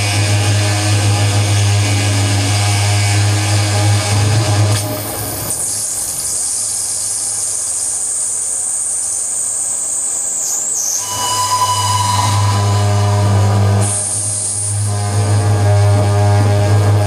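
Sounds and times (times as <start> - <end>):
high electronic hiss: 4.8 - 15.1
steady whistling tone: 5.7 - 15.2
loud low drone: 11.0 - 17.0.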